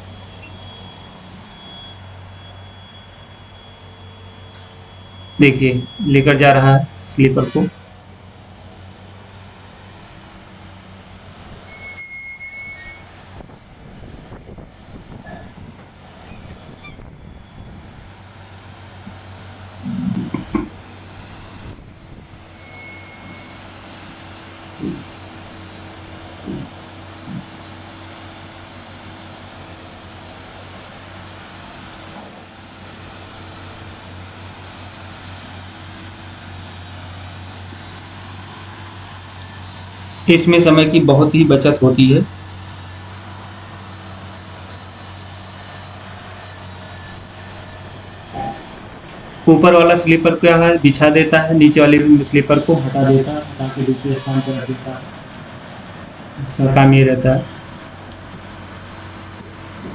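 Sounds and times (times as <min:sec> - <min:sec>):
high-pitched squeal: 0:00.0 - 0:10.5, 0:11.2 - 0:13.5, 0:15.2 - 0:27.5, 0:36.9 - 0:59.2
machinery humming: 0:00.0 - 0:59.9.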